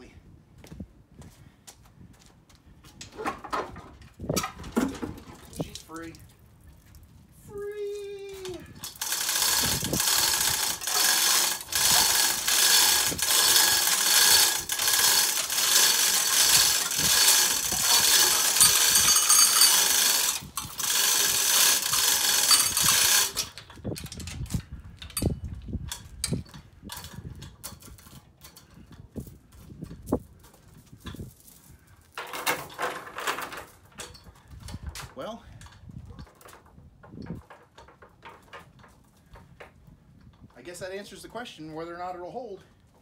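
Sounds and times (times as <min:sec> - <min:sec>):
chain hoist clattering and ratcheting: 0:08.4 - 0:39.7
light chain clinks: 0:08.8 - 0:23.6.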